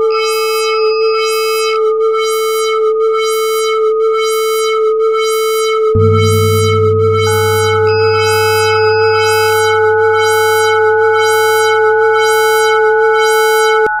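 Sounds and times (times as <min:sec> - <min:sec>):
high tones: 0:06.0 - 0:12.8
synthesizer chord: 0:06.0 - 0:12.8.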